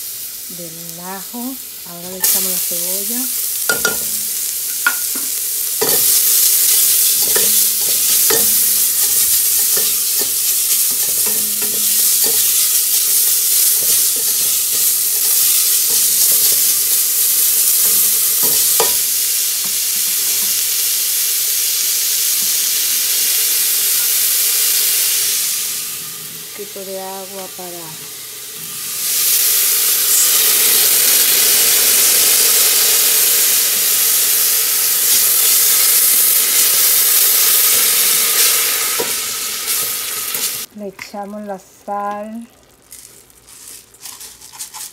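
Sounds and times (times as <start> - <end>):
onion and garlic sizzling: 0.0 - 44.9
spatula scraping a pot: 5.8 - 16.9.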